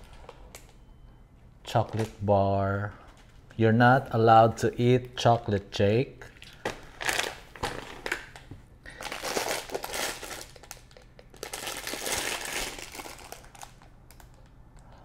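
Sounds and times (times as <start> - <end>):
plastic bag crinkling: 6.3 - 14.5.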